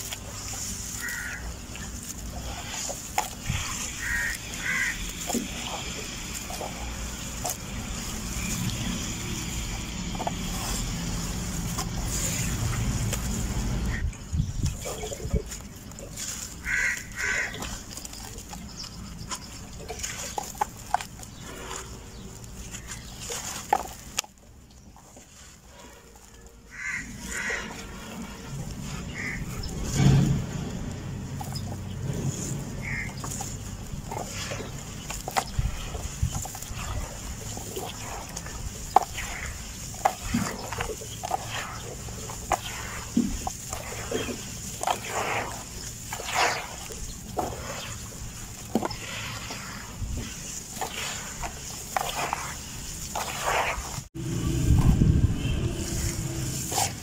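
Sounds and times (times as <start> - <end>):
hands crumbling and patting dirt: 0.0 - 54.1
wet mud squelching: 0.0 - 57.0
animal calls: 0.4 - 8.8, 16.2 - 20.5, 25.8 - 54.0.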